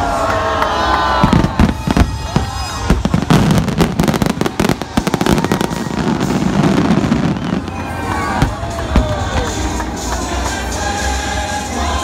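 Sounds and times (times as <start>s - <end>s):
fireworks bangs: 1.2s - 9.8s.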